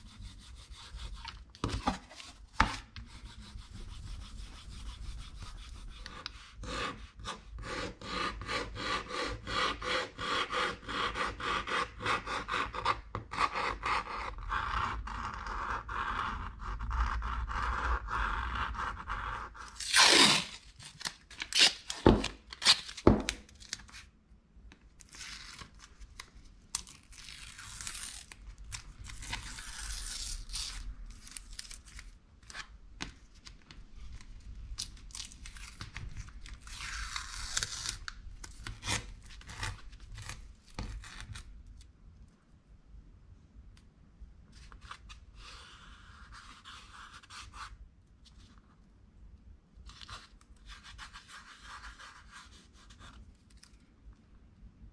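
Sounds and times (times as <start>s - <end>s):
tape peeling and tearing: 19.7s - 24.0s, 25.0s - 32.6s, 34.8s - 41.5s.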